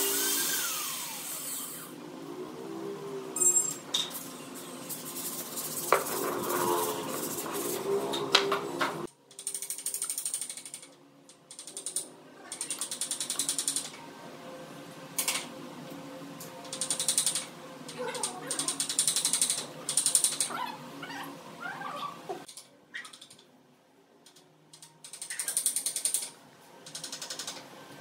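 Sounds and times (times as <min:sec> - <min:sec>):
rapid mechanical clicking: 0:09.3 - 0:14.0, 0:16.6 - 0:20.5, 0:24.2 - 0:27.7.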